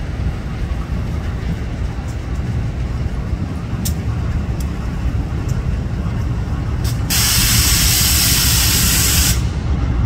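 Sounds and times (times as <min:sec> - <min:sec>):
locomotive engine rumbling: 0:00.0 - 0:10.0
compressed air hissing: 0:06.9 - 0:09.5.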